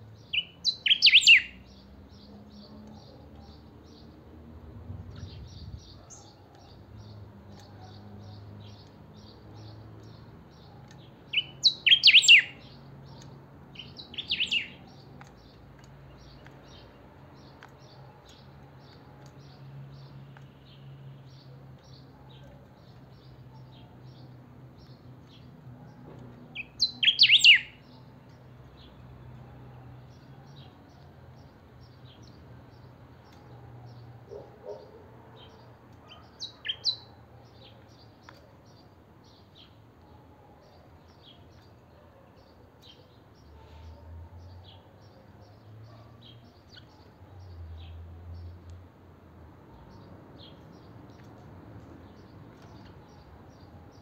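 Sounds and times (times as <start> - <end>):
bird singing short phrases: 0.3 - 1.7, 11.3 - 14.8, 26.6 - 27.8.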